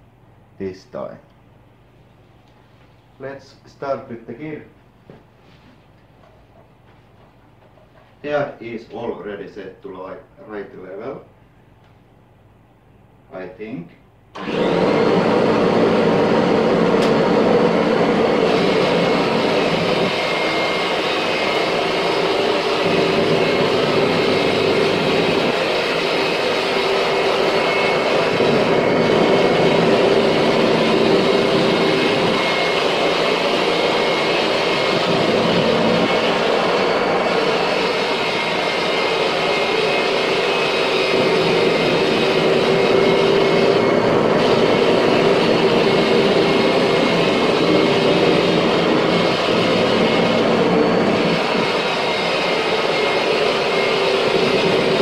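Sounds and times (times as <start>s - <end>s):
vacuum motor whine: 14.3s - 55.0s
upright vacuum cleaner running: 14.4s - 55.0s.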